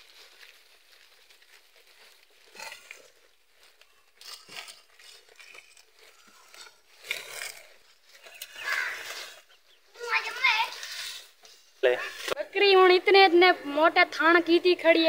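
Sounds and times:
goats munching grass: 0.0 - 12.4.

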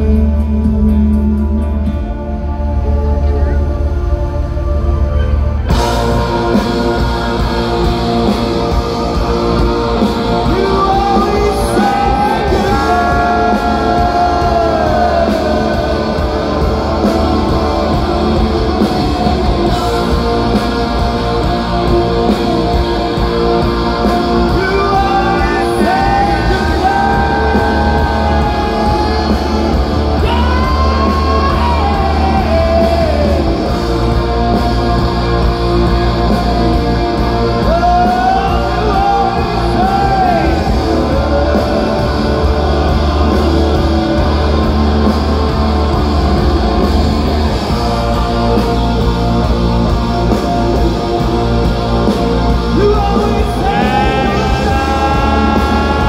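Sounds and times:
person singing: 0.0 - 35.4, 47.6 - 56.0
rock band playing live: 0.0 - 56.0.

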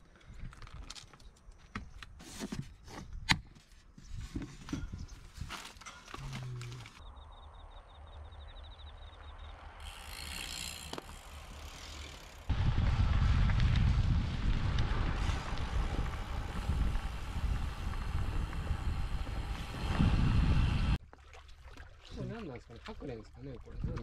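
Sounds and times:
tyre and road noise: 4.2 - 21.0
bicycle rolling past: 8.8 - 21.0
wind rushing over microphone: 12.5 - 21.0.

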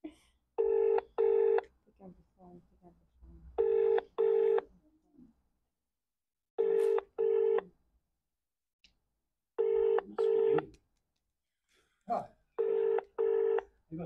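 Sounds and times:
telephone ringback tone: 0.6 - 1.6, 3.6 - 4.6, 6.6 - 7.6, 9.6 - 10.7, 12.6 - 13.6.

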